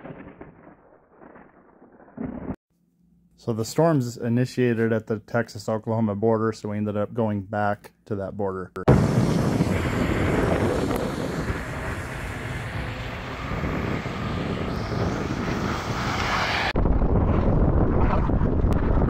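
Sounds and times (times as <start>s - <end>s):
low wind rumble: 8.9s - 19.0s
wind on microphone: 8.9s - 19.0s
passing highway traffic: 9.0s - 16.8s.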